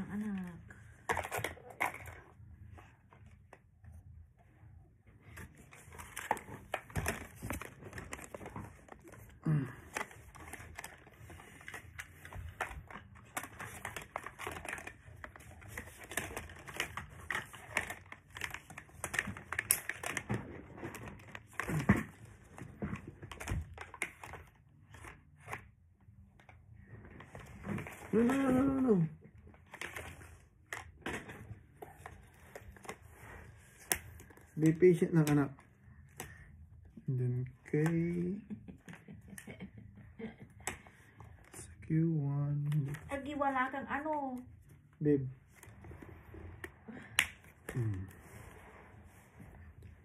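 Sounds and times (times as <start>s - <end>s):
plastic rustling: 5.2s - 25.5s.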